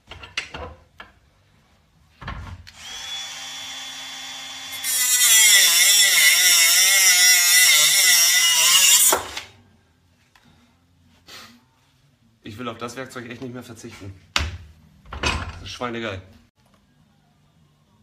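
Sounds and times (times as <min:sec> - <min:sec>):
grinder grinding metal: 0:02.8 - 0:09.4.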